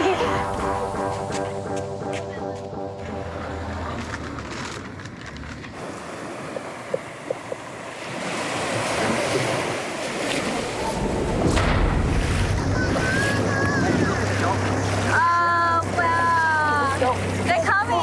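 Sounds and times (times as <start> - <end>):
waves breaking on a beach: 5.8 - 18.0
wind buffeting microphone: 10.3 - 15.1
low wind rumble: 10.4 - 17.5.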